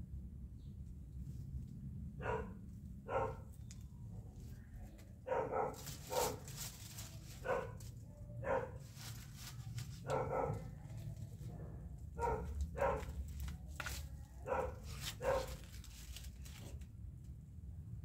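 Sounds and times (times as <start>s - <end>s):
dog barking: 2.2s - 3.5s, 5.2s - 6.5s, 7.4s - 8.9s, 10.0s - 10.9s, 12.1s - 13.2s, 14.4s - 15.6s.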